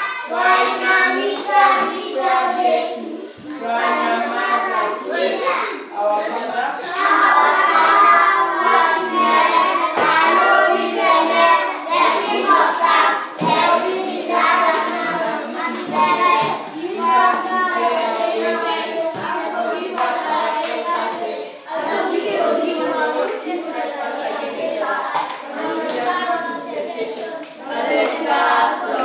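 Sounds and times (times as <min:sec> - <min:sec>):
children singing together: 0:00.0 - 0:29.0.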